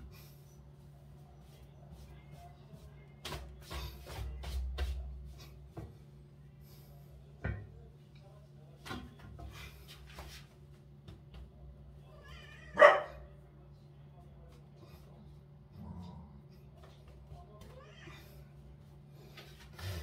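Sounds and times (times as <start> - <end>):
faint low hum: 0.0 - 20.0
dog barking: 12.7 - 13.2.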